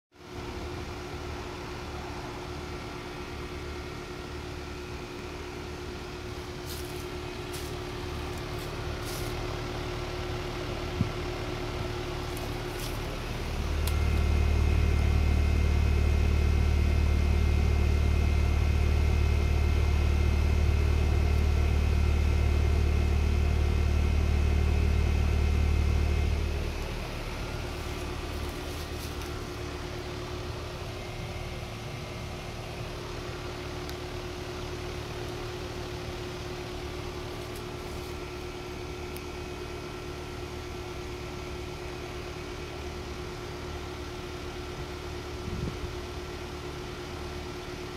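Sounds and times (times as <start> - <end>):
heat pump unit humming: 0.2 - 47.9
deep low hum: 6.2 - 39.5.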